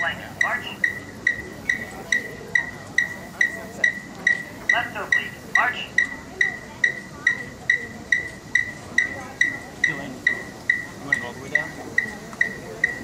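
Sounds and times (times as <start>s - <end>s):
faint crowd chatter: 0.0s - 13.0s
metronome beeping: 0.0s - 13.0s.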